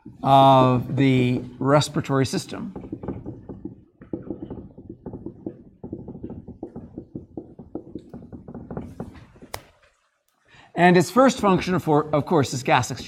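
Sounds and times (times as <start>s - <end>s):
marker writing on whiteboard: 0.0s - 10.0s.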